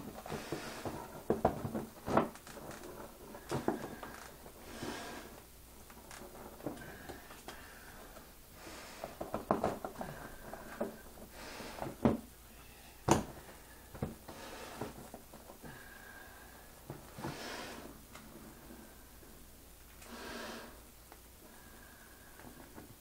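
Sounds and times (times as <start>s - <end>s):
handling knocks and rustles: 0.0s - 4.6s, 9.0s - 12.3s.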